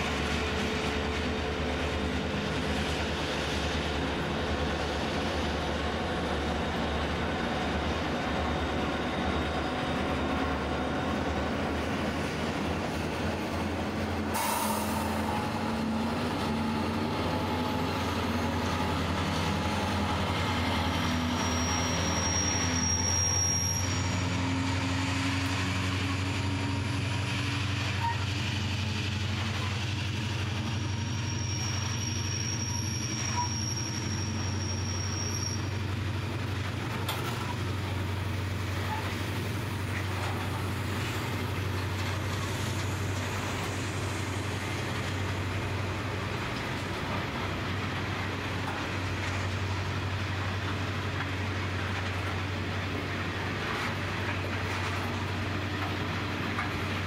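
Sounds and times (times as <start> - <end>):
freight train wagons rolling: 0.0 - 57.0
high wheel squeal: 2.6 - 13.4, 14.2 - 37.7, 38.5 - 47.3.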